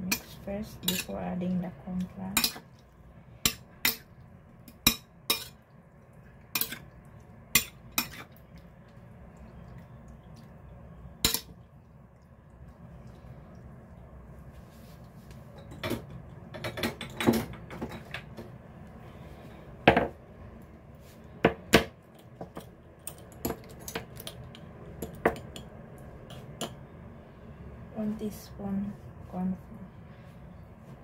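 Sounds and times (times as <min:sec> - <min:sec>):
metal spoon and dishes clinking: 0:02.3 - 0:02.6, 0:04.7 - 0:05.6, 0:06.6 - 0:06.9.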